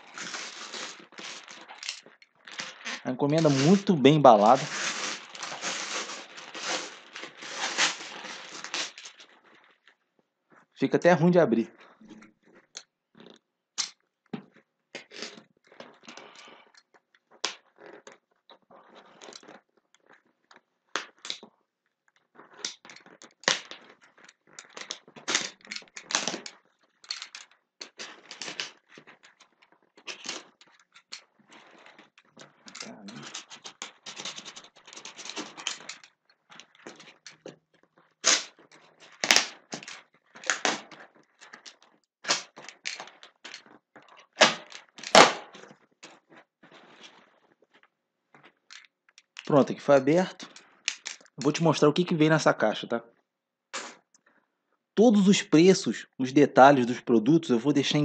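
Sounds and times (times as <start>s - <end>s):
knife slicing tape and cardboard: 4.5s - 9.0s, 44.4s - 45.5s.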